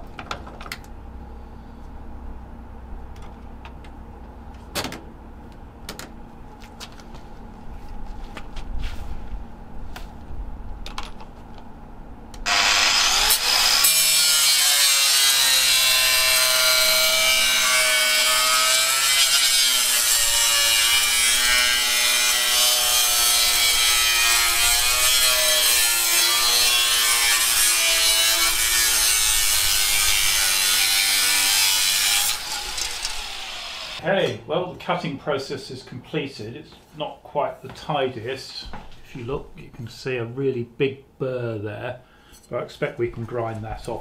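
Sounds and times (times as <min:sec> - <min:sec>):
angle grinder cutting metal: 0:12.5 - 0:34.0.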